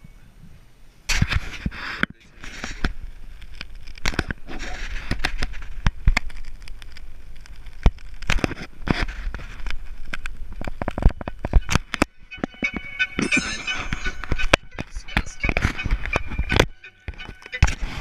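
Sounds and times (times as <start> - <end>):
ice knocks and crackles: 2.4 - 12.1.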